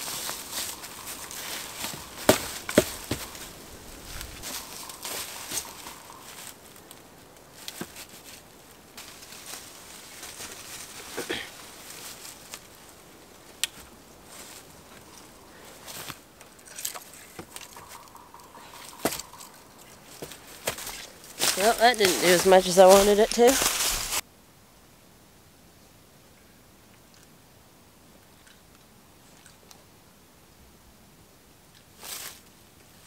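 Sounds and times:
wooden poles knocking: 0.0 - 6.5, 16.9 - 23.5
footsteps on dry leaves: 0.0 - 16.2, 16.9 - 24.2
dry rustling: 0.0 - 24.2.

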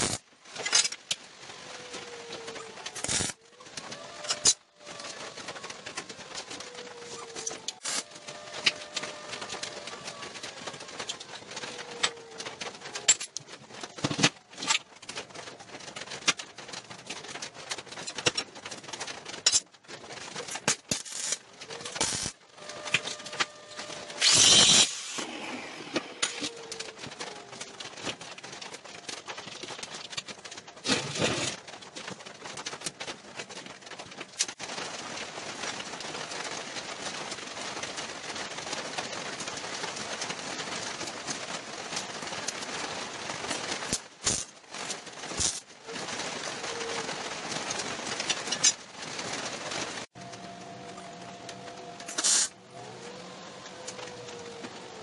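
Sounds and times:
loud harsh burst: 0.0 - 0.2, 24.2 - 25.9
steady hiss: 0.0 - 0.2.

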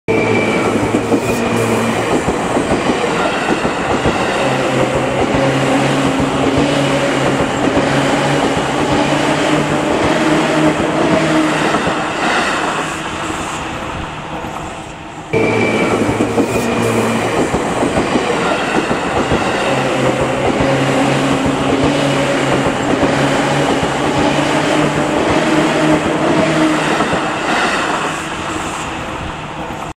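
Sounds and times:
train wheels rumbling on rails: 0.1 - 30.0.

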